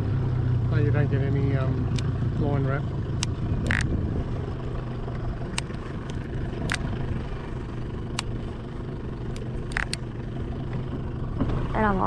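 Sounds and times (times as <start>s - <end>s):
outboard motor idling: 0.0s - 12.0s
sharp clicks: 3.2s - 3.9s, 9.3s - 10.1s.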